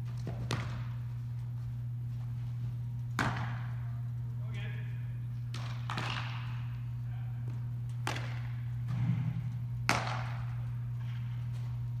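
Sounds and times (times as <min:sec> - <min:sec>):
baseball impacts echoing: 0:00.0 - 0:01.3, 0:03.0 - 0:04.1, 0:05.4 - 0:11.8
steady low hum: 0:00.0 - 0:12.0.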